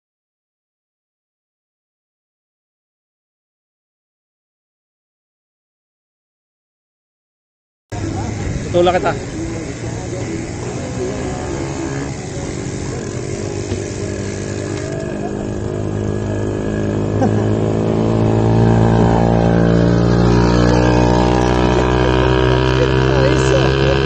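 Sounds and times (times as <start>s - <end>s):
vehicle engine running: 7.9s - 24.0s.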